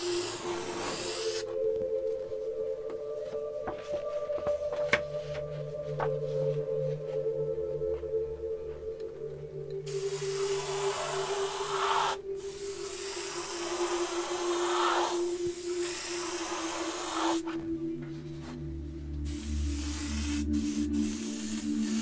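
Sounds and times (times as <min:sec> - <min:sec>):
airbrush spraying hiss: 0:00.0 - 0:01.6, 0:09.9 - 0:17.6, 0:19.2 - 0:22.0.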